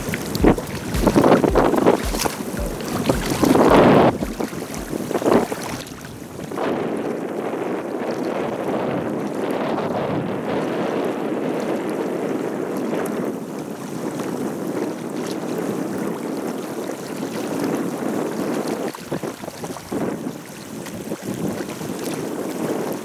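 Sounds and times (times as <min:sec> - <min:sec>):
river water rushing: 0:00.0 - 0:06.5
wind on microphone: 0:00.0 - 0:23.0.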